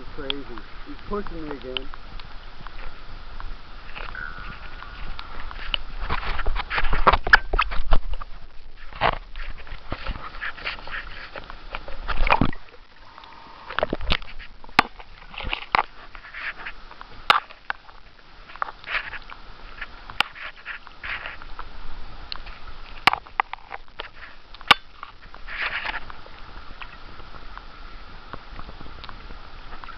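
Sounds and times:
whale clicks underwater: 1.5s - 5.9s.

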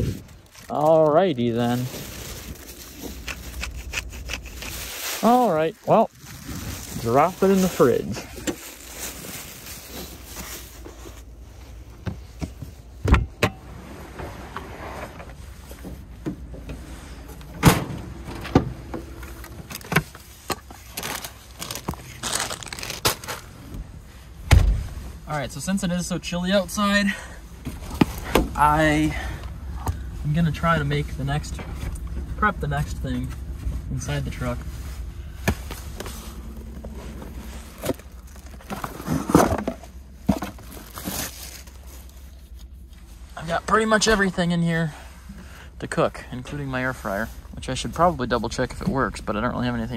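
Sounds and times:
plastic bag crinkling: 0.1s - 10.7s, 19.4s - 23.6s, 35.7s - 39.4s, 40.5s - 42.4s
cardboard scraping and rustling: 13.8s - 23.6s, 33.2s - 42.7s.

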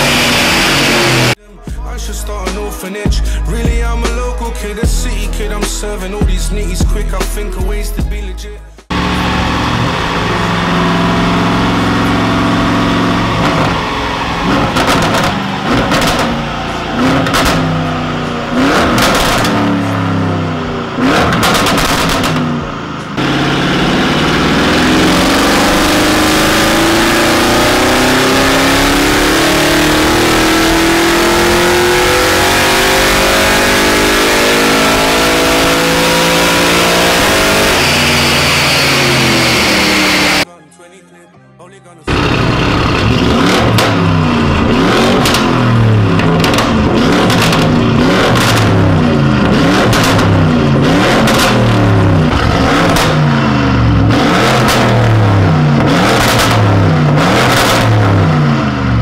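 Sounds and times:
car engine revving: 0.0s - 1.4s, 8.8s - 40.5s, 42.1s - 59.0s
exhaust pops and bangs: 14.5s - 16.4s, 17.1s - 17.8s, 18.8s - 19.7s, 21.1s - 22.7s, 43.0s - 51.7s.

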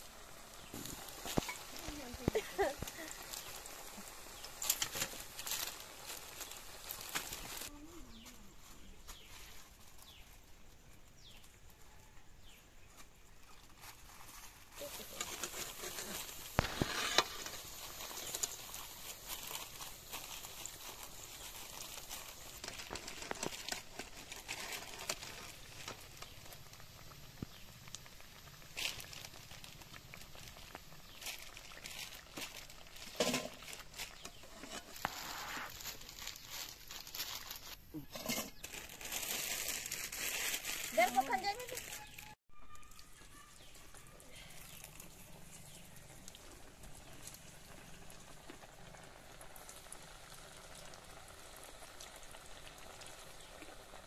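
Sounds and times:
deep-frying sizzle: 0.0s - 37.3s, 38.2s - 54.0s
metal ladle scraping a pan: 14.9s - 18.8s, 33.1s - 35.7s, 38.0s - 38.6s.

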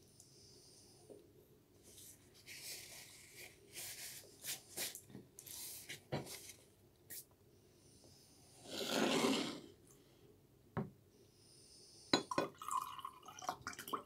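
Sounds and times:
rustling and scraping: 1.8s - 6.7s.

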